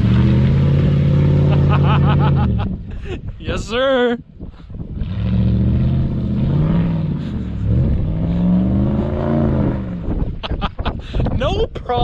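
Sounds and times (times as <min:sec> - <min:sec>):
truck engine revving: 0:00.0 - 0:02.9, 0:04.9 - 0:10.4.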